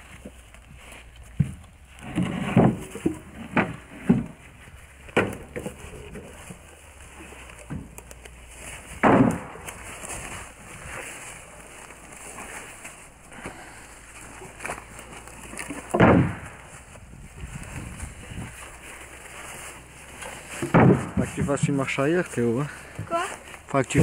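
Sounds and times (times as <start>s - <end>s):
logs thudding onto trailer bed: 1.4s - 4.4s, 5.1s - 6.2s, 7.6s - 10.6s, 14.3s - 17.0s, 20.1s - 21.7s.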